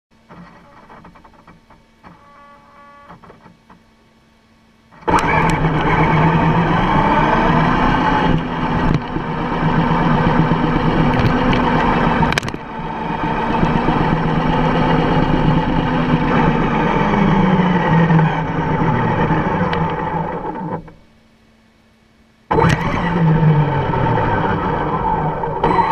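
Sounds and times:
electric motor whine: 4.9 - 21.0, 22.5 - 25.9.

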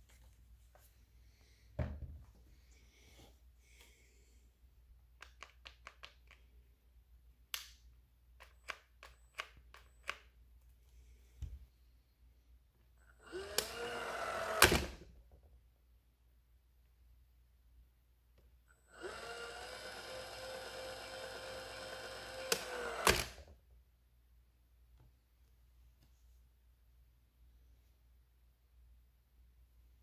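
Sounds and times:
caulk gun motor whirring: 13.2 - 15.0, 18.8 - 23.5.

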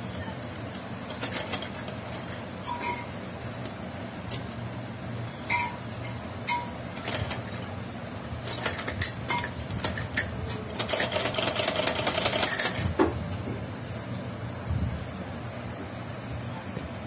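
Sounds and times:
sewing machine clicking: 1.1 - 1.9, 7.0 - 7.6, 10.8 - 12.9.

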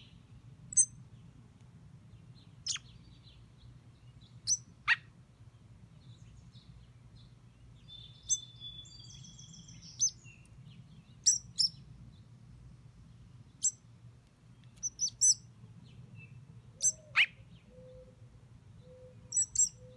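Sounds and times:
bird chirping high: 0.0 - 1.0, 2.6 - 3.4, 4.2 - 5.1, 7.8 - 11.9, 13.6 - 13.8, 14.7 - 15.5, 16.2 - 18.2, 18.8 - 19.9.

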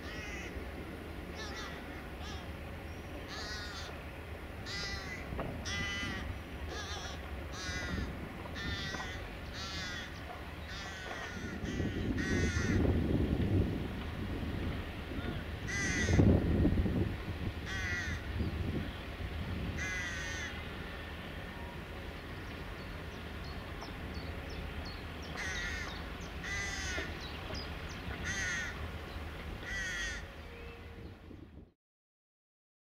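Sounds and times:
crow cawing: 0.1 - 0.5, 1.4 - 2.4, 3.3 - 3.9, 4.6 - 10.1, 10.7 - 12.9, 15.7 - 16.2, 17.7 - 18.2, 19.8 - 20.6, 25.4 - 27.1, 28.2 - 28.8, 29.6 - 30.3.

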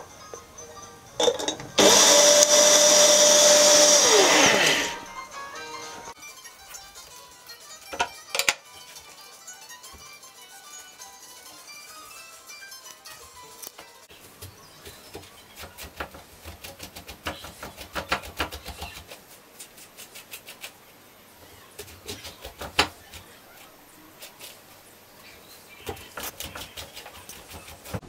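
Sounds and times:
metal spoon scraping eggplant: 21.8 - 28.0.

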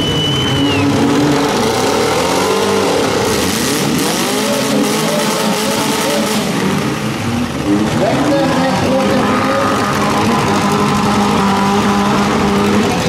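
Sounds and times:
high steady squeal: 0.0 - 2.3
car engines revving: 0.0 - 13.0.

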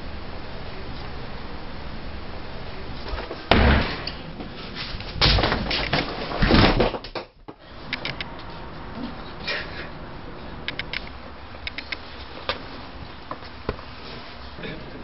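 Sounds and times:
loud rustling thumps: 3.0 - 7.5
faint clicks: 10.7 - 12.6.

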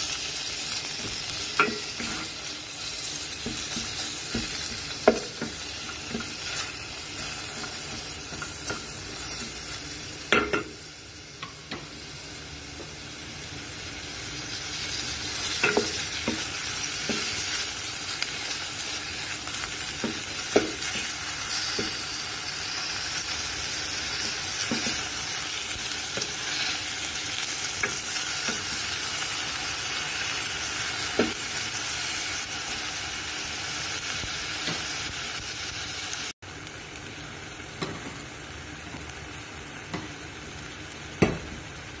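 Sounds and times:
meat and onions sizzling in pot: 0.0 - 42.0
spatula stirring and scraping: 1.6 - 9.6.

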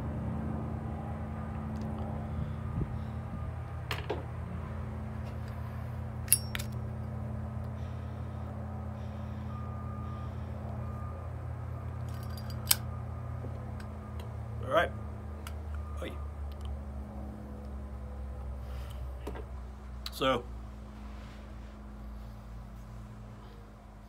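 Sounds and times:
heavy construction machinery running: 0.0 - 23.9
reversing alarm beeps: 8.8 - 11.9, 15.7 - 16.5.

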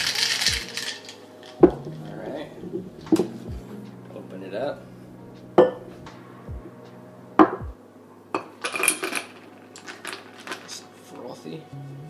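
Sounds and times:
cocktail shaker clanks: 0.0 - 1.2
ice and liquid clinking: 0.0 - 1.8.

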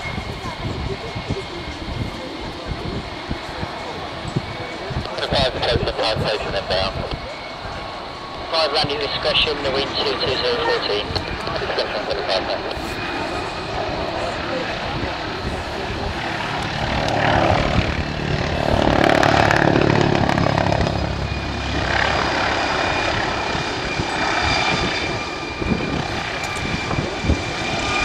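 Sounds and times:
helicopter flying overhead: 0.0 - 28.0
high turbine whine: 0.0 - 28.0.

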